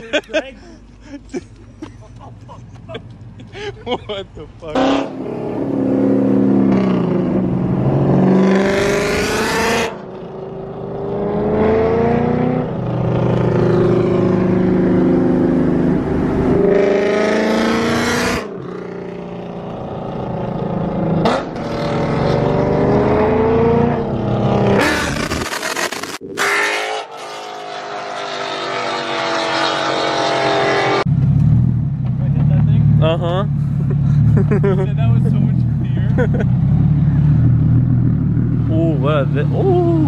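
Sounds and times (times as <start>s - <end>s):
car engine accelerating: 4.6s - 40.0s.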